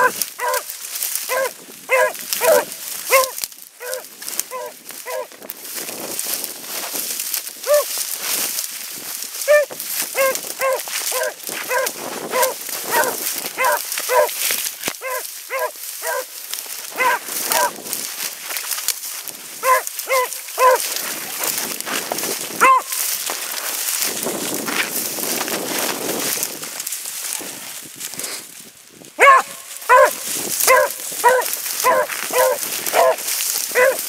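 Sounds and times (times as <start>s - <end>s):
dog barking: 0.0s - 0.7s, 1.3s - 5.3s, 7.6s - 7.9s, 9.4s - 14.4s, 15.0s - 16.3s, 16.9s - 17.8s, 19.6s - 21.0s, 22.6s - 23.1s, 29.2s - 34.0s.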